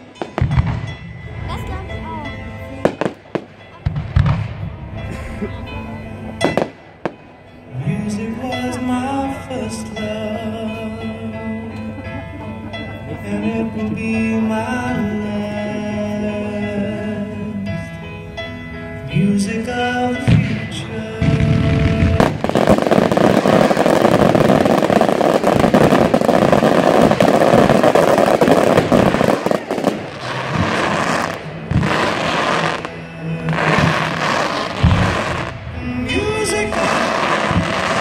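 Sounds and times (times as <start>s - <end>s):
music with sustained tones: 0.0s - 38.0s
firework booms: 2.9s - 4.7s, 20.3s - 32.9s
firework bursts and crackle: 20.3s - 35.6s, 36.5s - 38.0s.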